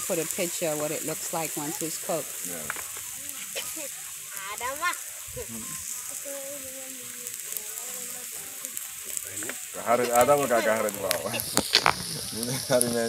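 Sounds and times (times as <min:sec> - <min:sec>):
ribs sizzling on grill plate: 0:00.0 - 0:13.0.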